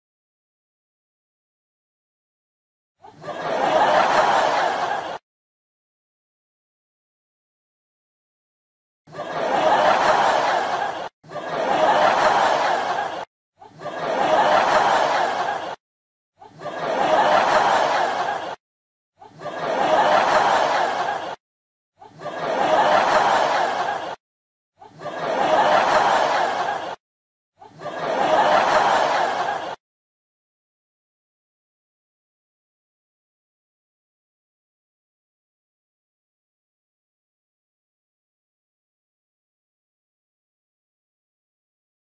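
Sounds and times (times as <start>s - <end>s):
canned audience laughter: 3.0s - 5.2s, 9.1s - 15.8s, 16.4s - 18.6s, 19.2s - 21.4s, 22.0s - 24.2s, 24.8s - 27.0s, 27.6s - 29.8s.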